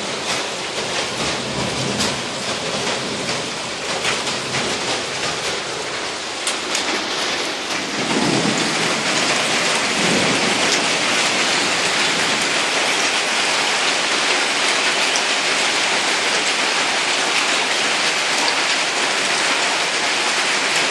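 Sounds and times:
heavy rain and hail: 0.0 - 20.9
sharp ticks of hail: 0.2 - 20.9
low thunder rumbles: 1.0 - 13.1.

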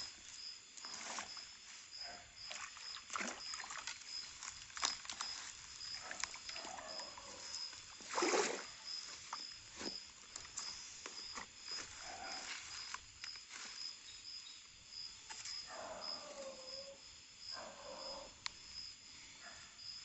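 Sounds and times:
pulsing insect call: 0.0 - 19.0
water splashing: 2.4 - 9.5
water dripping from net: 2.5 - 9.4.

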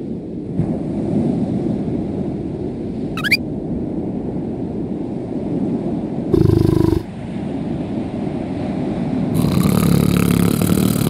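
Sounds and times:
ocean waves rumbling: 0.5 - 11.0
rising chirp: 3.2 - 3.4.

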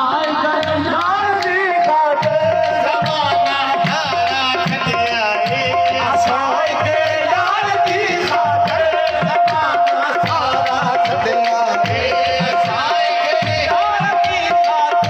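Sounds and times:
man singing through microphone: 0.0 - 15.0
tabla drumming: 0.0 - 15.0.

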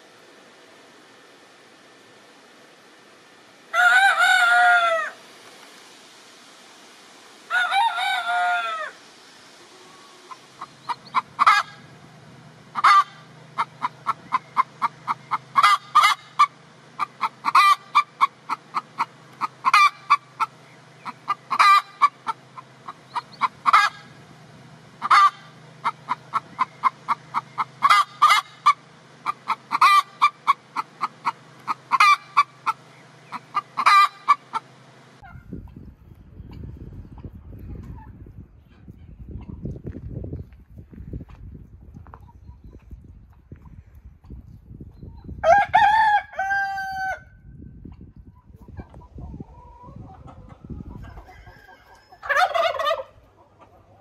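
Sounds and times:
rooster crowing: 3.7 - 5.2, 7.5 - 9.0, 45.4 - 47.4, 51.0 - 53.2
chickens clucking: 7.5 - 47.1, 47.8 - 54.0.

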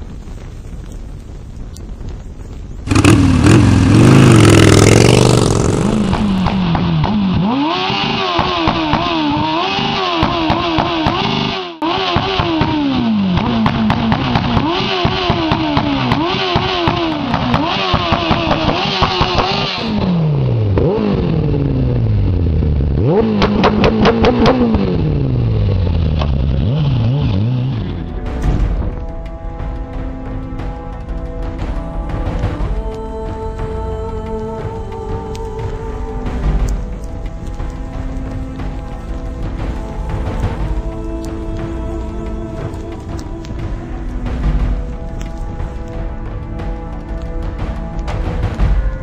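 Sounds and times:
loud rush of noise: 0.0 - 10.6
motorcycle engine revving: 2.9 - 49.0.

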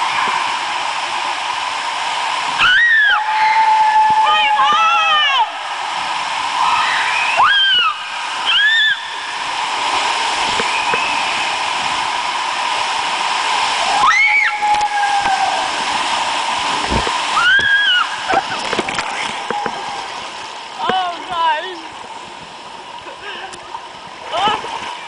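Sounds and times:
water rushing in slide: 0.0 - 25.0
people screaming: 2.6 - 5.6, 6.6 - 9.4, 13.8 - 15.9, 17.3 - 18.6.

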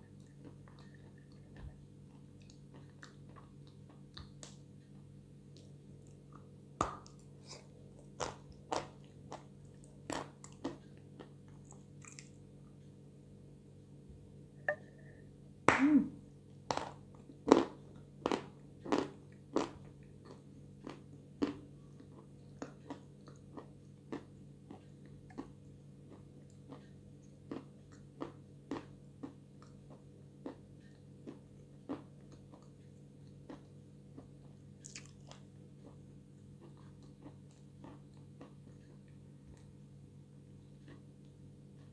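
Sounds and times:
crunchy chewing: 5.6 - 12.5, 16.7 - 39.8, 40.6 - 41.9.

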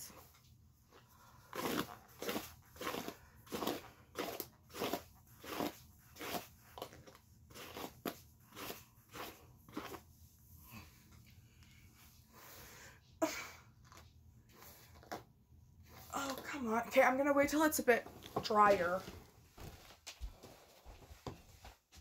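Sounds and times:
hairbrush brushing through wet hair: 7.5 - 10.2.

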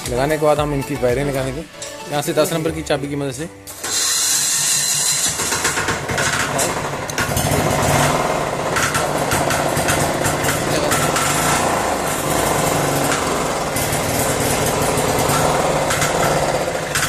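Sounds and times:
small engine running: 3.7 - 17.0.

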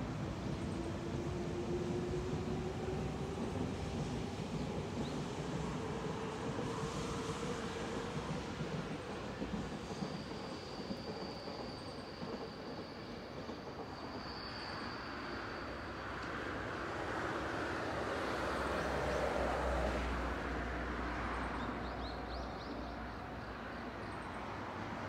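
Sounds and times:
electric train rumbling: 0.0 - 25.0
thin high whine: 9.8 - 17.3.

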